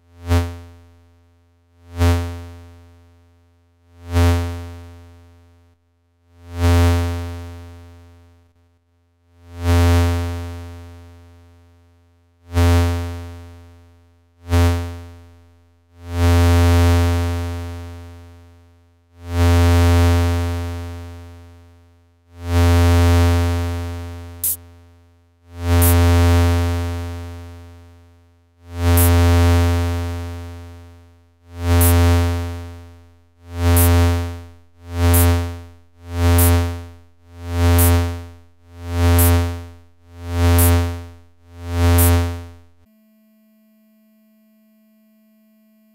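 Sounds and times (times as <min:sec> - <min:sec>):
buzzy synthesizer notes: 0:29.0 - 0:29.2, 0:31.8 - 0:32.1, 0:33.6 - 0:42.8
short click: 0:39.2 - 0:39.4, 0:40.6 - 0:40.8.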